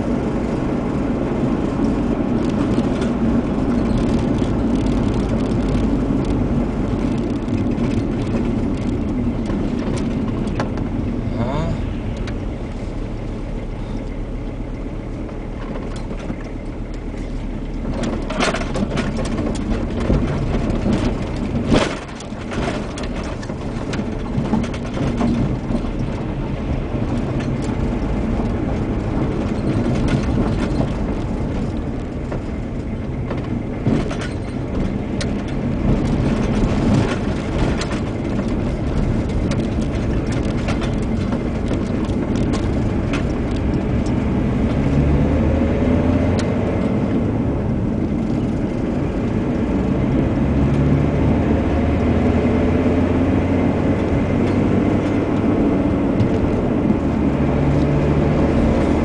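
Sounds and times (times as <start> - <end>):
car engine and tyre noise: 0.0 - 59.0.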